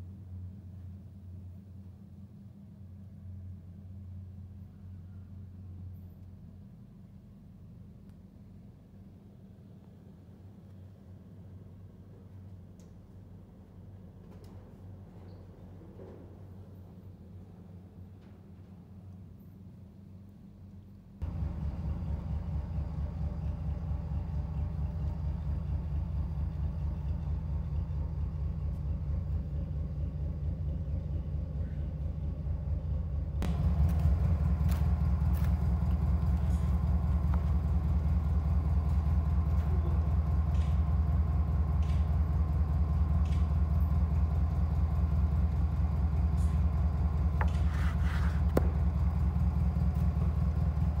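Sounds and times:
engine running with pulsing hum: 0.0s - 51.0s.

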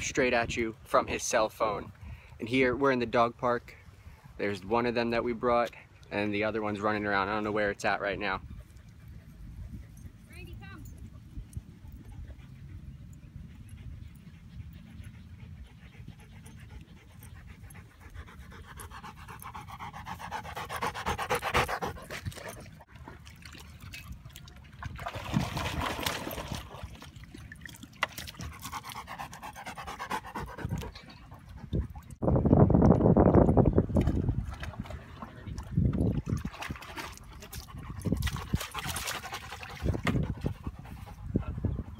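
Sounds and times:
dog panting: 11.7s - 22.8s, 28.4s - 32.1s.

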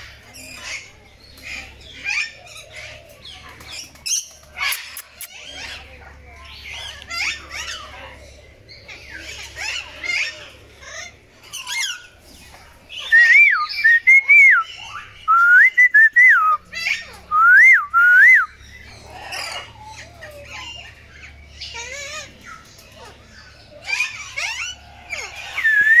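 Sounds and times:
parrots chirping and squawking: 0.0s - 14.0s, 14.6s - 15.3s, 16.6s - 17.3s, 18.5s - 26.0s
loud whistling: 13.1s - 14.7s, 25.6s - 26.0s.

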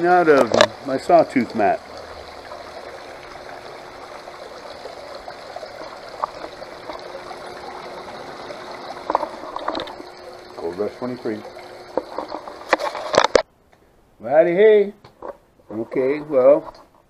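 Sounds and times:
water running down metal sluice: 0.0s - 13.4s.

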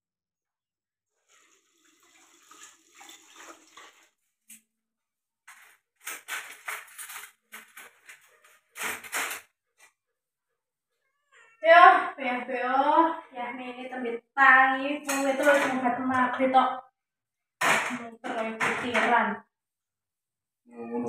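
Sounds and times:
tap water running into sink: 1.2s - 4.2s.

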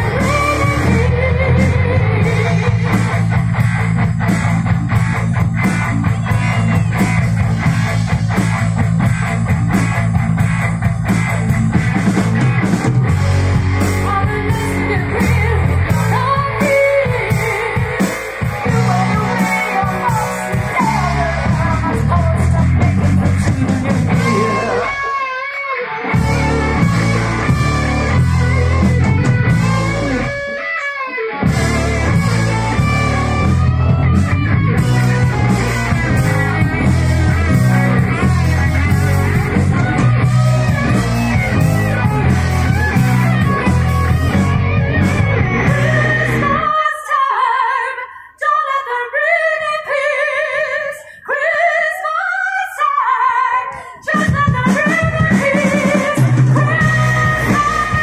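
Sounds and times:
woman singing: 0.0s - 3.2s, 13.8s - 25.6s, 45.4s - 58.0s
live rock band playing: 0.0s - 47.0s, 53.8s - 58.0s.

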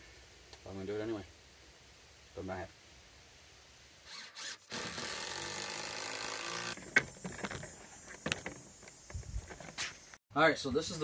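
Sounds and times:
power tool working into wood: 4.1s - 6.8s.

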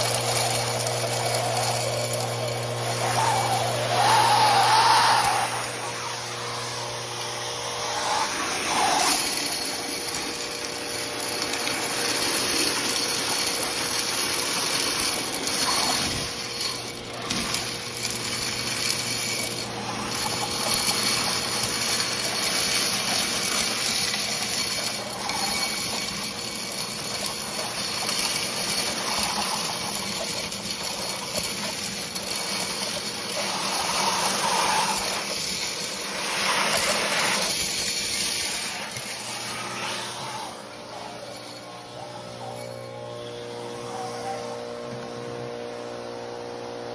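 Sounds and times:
metal pellets rattling in tube: 0.0s - 6.7s, 7.9s - 43.0s
industrial vacuum rushing air: 0.0s - 46.9s.

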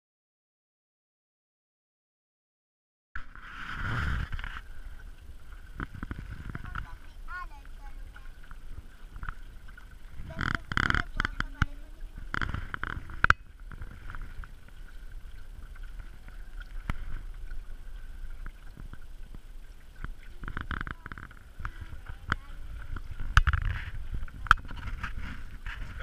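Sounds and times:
water slapping against a hull: 3.2s - 26.0s.

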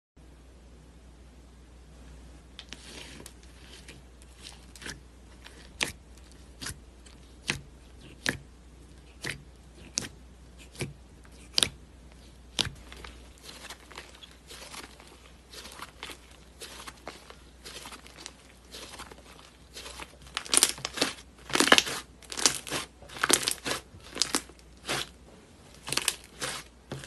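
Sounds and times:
slime crackling: 2.6s - 27.0s.

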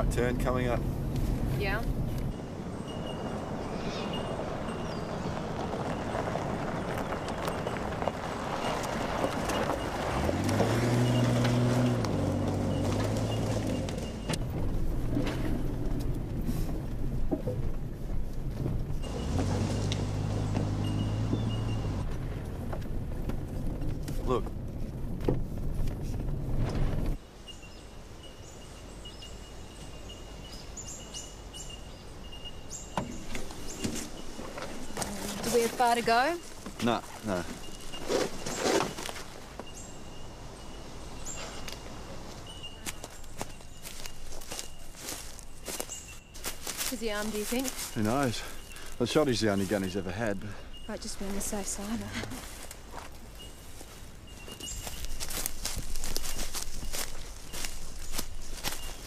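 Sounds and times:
low engine hum: 0.0s - 27.2s
tyres on gravel track: 0.0s - 59.0s
high steady bird trill: 2.3s - 11.9s, 27.3s - 59.0s
short rising bird chirps: 2.8s - 5.4s.

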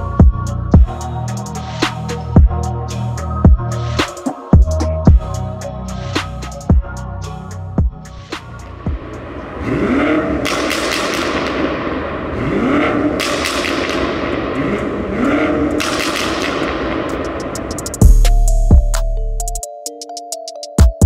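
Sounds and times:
car engine revving: 8.2s - 18.2s
exhaust crackles and pops: 9.8s - 18.0s.

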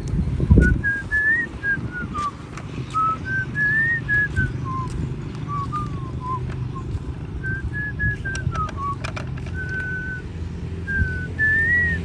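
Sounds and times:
low rumble of handling noise: 0.0s - 12.0s
person whistling a tune: 0.6s - 2.3s, 2.9s - 9.0s, 9.6s - 10.2s, 10.9s - 12.0s.

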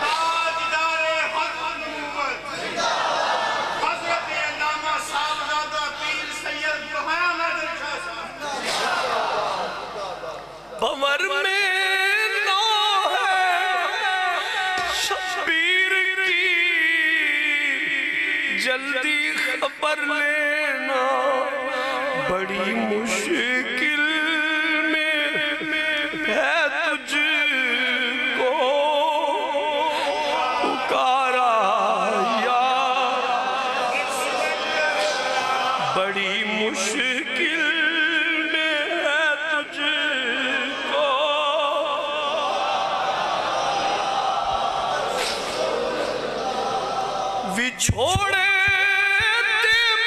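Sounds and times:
man singing unaccompanied: 10.8s - 34.9s, 35.8s - 42.3s, 47.5s - 50.0s
singer breathing: 21.7s - 22.2s, 29.9s - 30.3s.

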